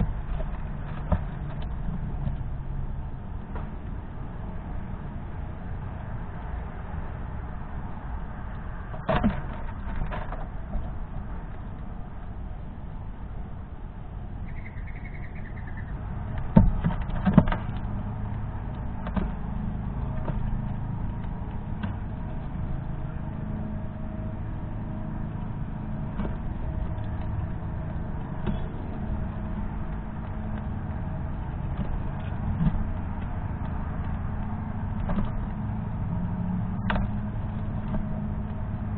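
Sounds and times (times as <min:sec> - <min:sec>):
low outdoor rumble: 0:00.0 - 0:38.9
squirrel feeding on seeds: 0:14.4 - 0:38.9.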